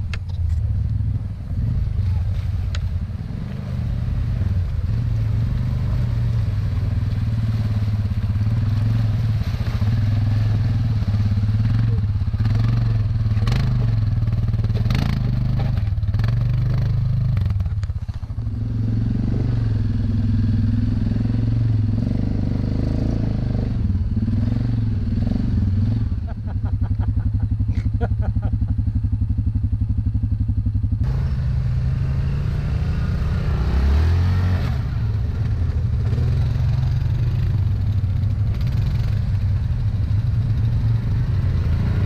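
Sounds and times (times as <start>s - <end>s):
atv engine running under load: 0.0s - 42.0s
engine with rapid pulsing beat: 26.5s - 32.9s.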